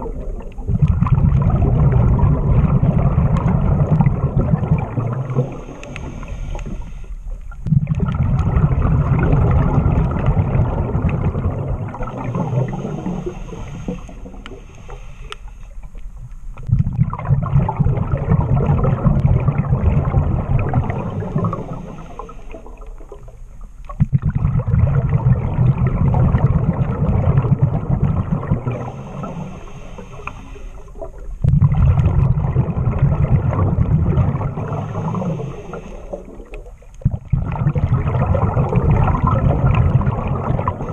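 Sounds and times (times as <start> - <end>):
exhaled bubbles rushing underwater: 0.0 - 40.9
regulator inhale hiss: 5.4 - 7.5, 12.2 - 15.9, 20.9 - 23.0, 28.7 - 31.2, 34.6 - 36.5.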